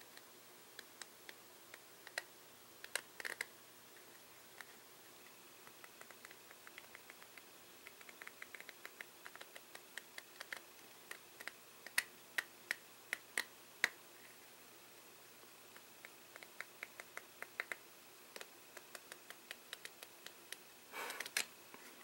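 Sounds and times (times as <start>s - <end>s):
playing cards clicking: 2.9s - 3.5s, 5.7s - 13.5s, 18.4s - 21.5s.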